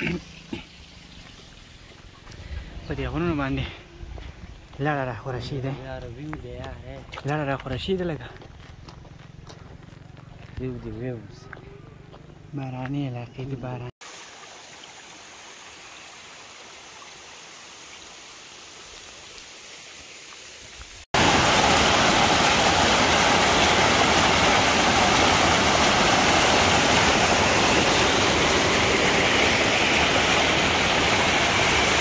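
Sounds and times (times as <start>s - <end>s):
mountain stream rushing: 14.0s - 32.0s.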